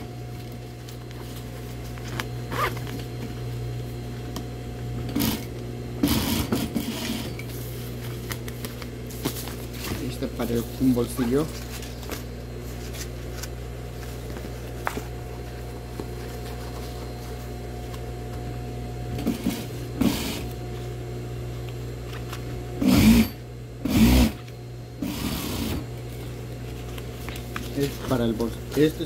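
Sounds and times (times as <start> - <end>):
sewing machine stitching: 5.1 - 7.3, 19.2 - 20.5, 22.8 - 24.4, 25.0 - 25.8
sewing machine motor humming: 5.1 - 7.4, 19.2 - 20.6, 22.8 - 25.9.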